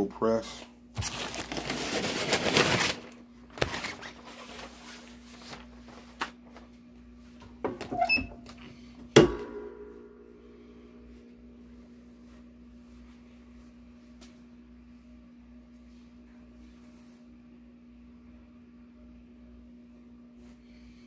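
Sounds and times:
paper rustling: 0:01.0 - 0:06.7.

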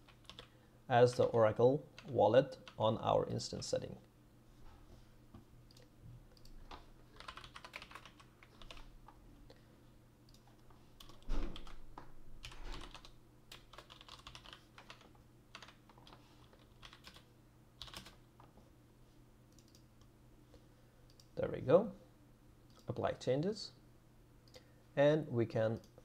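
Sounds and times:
keyboard typing clicks: 0:12.4 - 0:17.2, 0:19.5 - 0:19.9.

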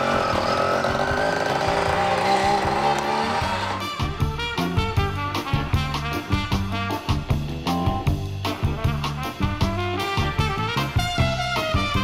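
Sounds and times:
upbeat swing music: 0:02.4 - 0:12.0.

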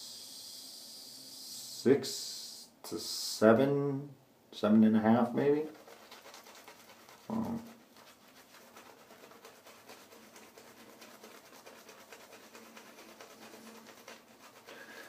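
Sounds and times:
person's low vocal sound: 0:07.3 - 0:07.6.

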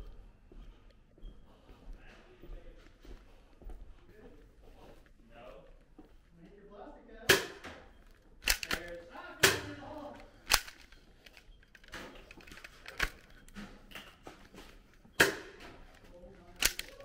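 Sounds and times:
toy blasters snapping: 0:08.4 - 0:08.9, 0:10.5 - 0:10.8, 0:16.6 - 0:17.0.

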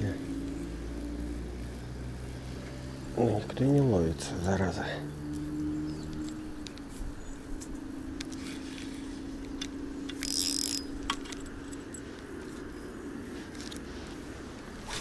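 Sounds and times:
fishing reel whirring: 0:08.3 - 0:11.4.

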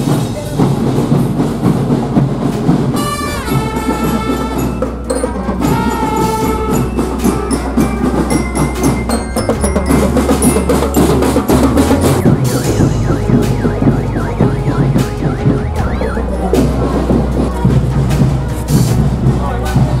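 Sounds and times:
marching drums: 0:00.0 - 0:20.0
trumpets holding notes: 0:02.9 - 0:19.1
bell lyre notes: 0:04.2 - 0:17.8.

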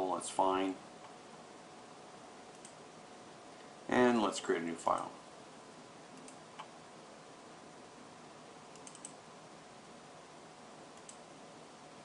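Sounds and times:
steady low hiss: 0:00.0 - 0:12.0
computer mouse clicks: 0:02.5 - 0:02.8, 0:06.1 - 0:06.7, 0:08.7 - 0:09.2, 0:11.0 - 0:11.2.

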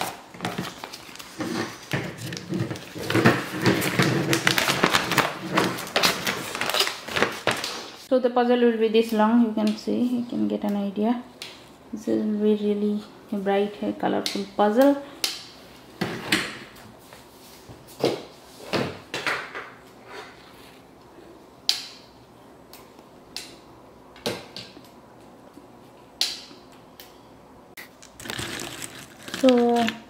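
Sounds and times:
glossy paper crinkling: 0:00.0 - 0:08.0, 0:28.0 - 0:30.0.

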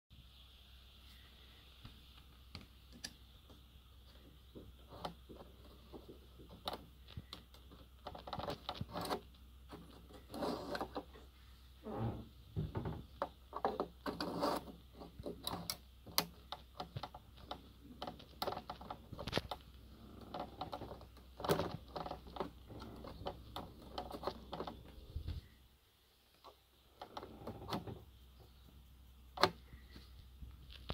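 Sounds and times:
plastic cap clicking and scraping: 0:04.6 - 0:11.2, 0:13.1 - 0:25.4.

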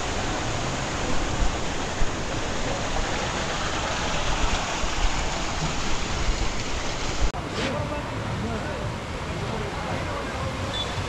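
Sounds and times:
water falling and splashing: 0:00.0 - 0:11.0.

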